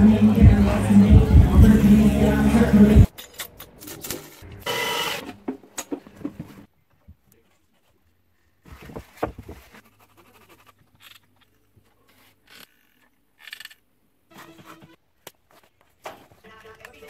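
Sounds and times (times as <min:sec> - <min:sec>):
foam tubes scraping and rubbing: 0:07.5 - 0:17.0.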